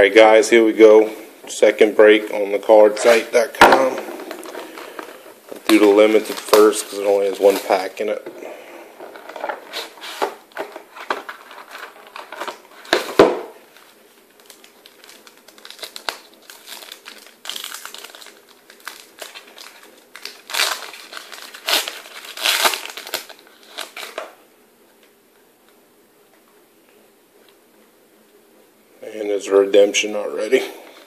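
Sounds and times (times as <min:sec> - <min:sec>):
foil wrapper crinkling and tearing: 0:05.6 - 0:08.1, 0:09.1 - 0:24.2.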